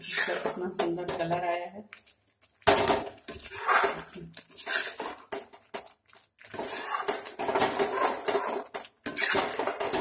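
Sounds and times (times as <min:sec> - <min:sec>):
metal ladle scraping a pan: 0:00.0 - 0:01.0, 0:03.3 - 0:10.0.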